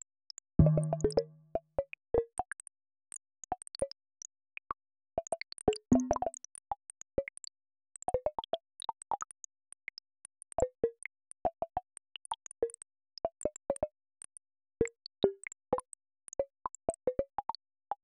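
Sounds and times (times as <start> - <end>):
synthesized plops: 0.6 - 1.4.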